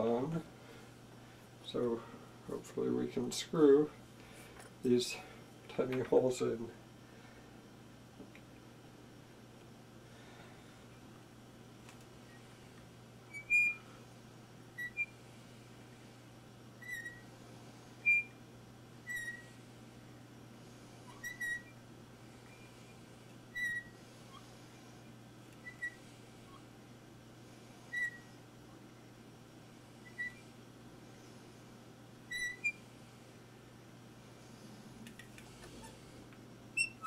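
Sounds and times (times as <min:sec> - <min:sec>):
hand drill squeaking: 0:36.8 - 0:37.0.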